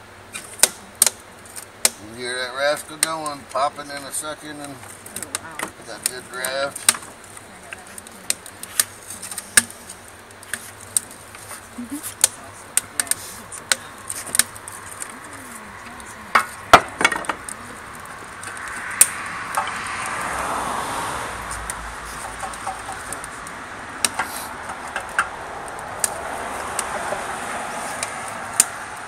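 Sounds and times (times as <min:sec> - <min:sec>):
firewood knocking: 0:00.3 - 0:29.0
broad rushing sound: 0:17.5 - 0:29.0.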